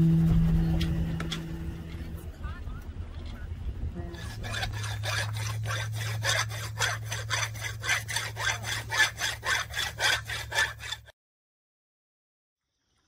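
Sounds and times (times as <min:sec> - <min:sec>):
steady low hum: 0:00.0 - 0:08.9
hand file rasping on metal: 0:04.1 - 0:11.1.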